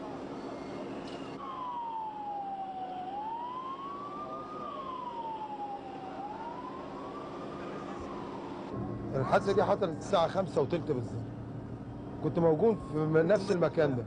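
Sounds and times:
ambulance siren wailing: 1.4s - 10.1s, 12.2s - 14.0s.

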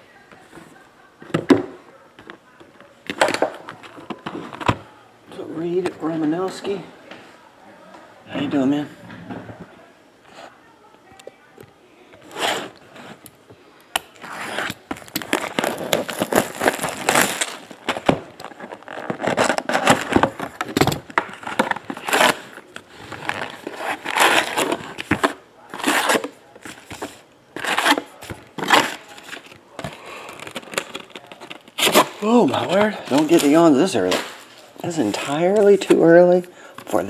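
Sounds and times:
packaging crinkling and rustling: 14.1s - 37.0s.

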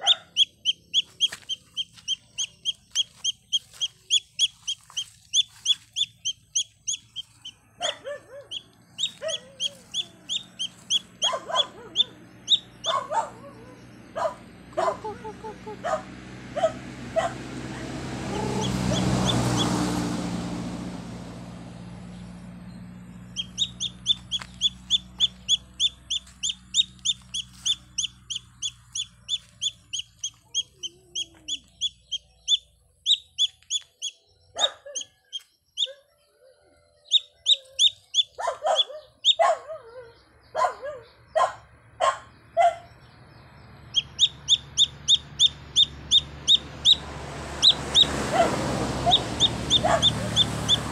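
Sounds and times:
chick peeping loudly: 0.0s - 16.0s, 18.2s - 19.8s, 23.3s - 36.2s, 37.0s - 39.6s, 43.9s - 50.9s.

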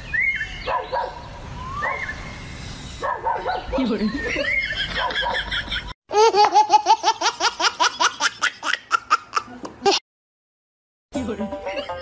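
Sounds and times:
high-pitched laughter: 3.9s - 10.0s, 11.6s - 12.0s.

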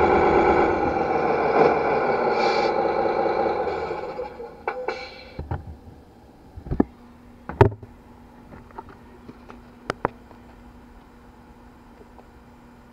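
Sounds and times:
toy truck engine: 0.0s - 4.7s
faint steady hum: 0.0s - 12.9s.

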